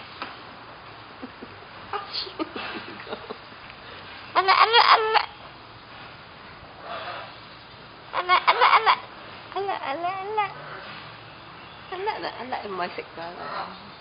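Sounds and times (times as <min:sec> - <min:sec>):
cockatoo imitating laughter: 0:04.4 - 0:05.3, 0:08.1 - 0:10.5.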